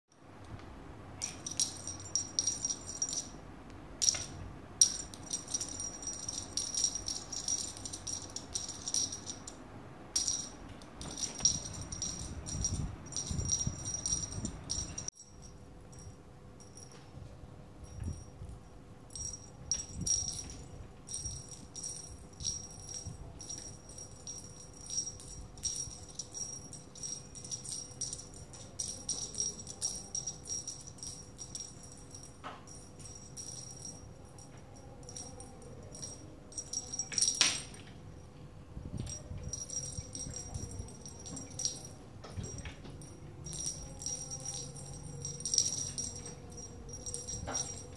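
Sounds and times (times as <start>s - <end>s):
small jingle bell jingling: 1.2s - 3.4s, 4.0s - 9.6s, 10.2s - 17.0s, 17.8s - 38.3s, 38.9s - 47.9s.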